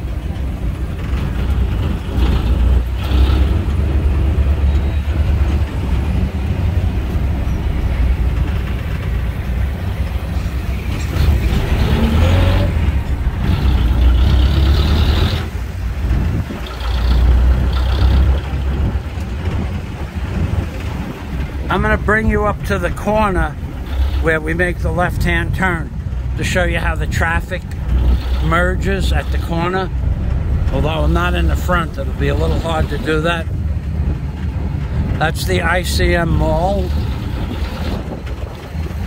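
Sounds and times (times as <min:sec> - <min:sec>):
diesel engine rumbling: 0:00.0 - 0:39.0
road noise: 0:00.0 - 0:39.0.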